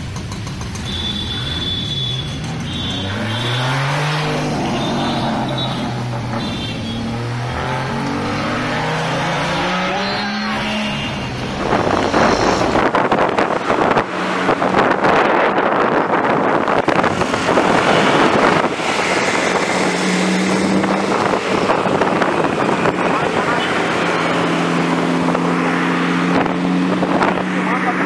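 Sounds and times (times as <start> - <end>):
sports car engines accelerating: 0.0 - 28.0
wind buffeting microphone: 11.3 - 27.6.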